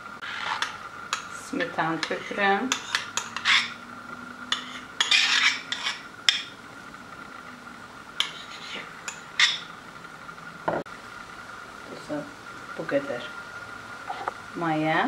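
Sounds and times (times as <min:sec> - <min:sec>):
metal spoon scraping a bowl: 0:00.2 - 0:03.8, 0:04.5 - 0:06.6, 0:08.2 - 0:09.7.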